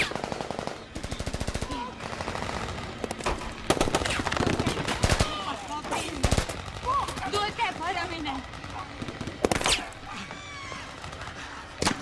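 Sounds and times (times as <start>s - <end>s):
loud sharp gunshots: 0.0s - 10.0s
machine-gun fire: 6.2s - 9.8s.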